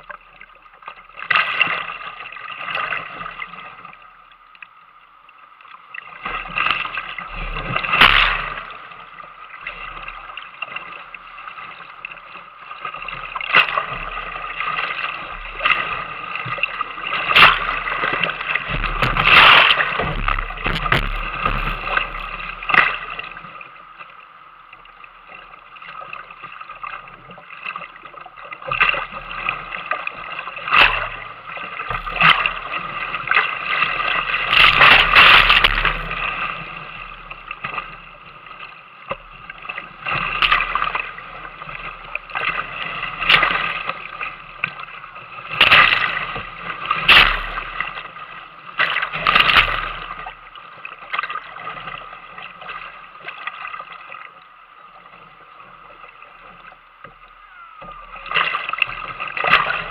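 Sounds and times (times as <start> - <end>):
whitewater rushing and splashing: 57.4 - 59.9.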